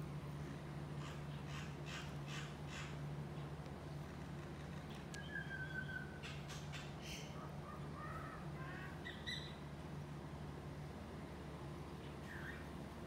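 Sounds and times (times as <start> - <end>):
low background hum: 0.0 - 13.0
bird whistled call: 5.2 - 6.4
bird chirps and squawks: 5.2 - 9.6.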